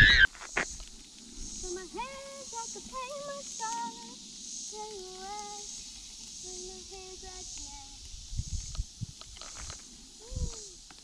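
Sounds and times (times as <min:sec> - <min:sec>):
faint pulsing hiss: 0:00.7 - 0:11.0
young girl singing: 0:01.6 - 0:05.8, 0:06.4 - 0:08.1.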